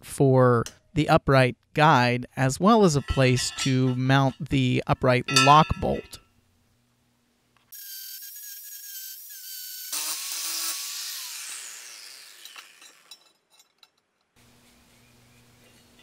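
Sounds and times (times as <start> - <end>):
angle grinder whining on steel: 7.8 - 13.3.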